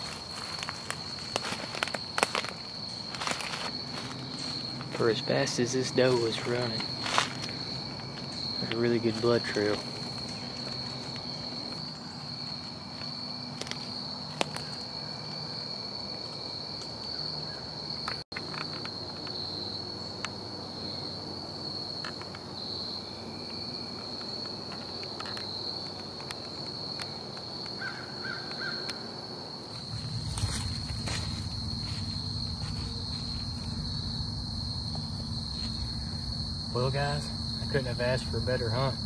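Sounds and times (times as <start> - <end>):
footsteps in dry leaves: 0.0 - 5.0, 6.1 - 8.5, 29.7 - 36.0
insects droning: 0.0 - 39.0.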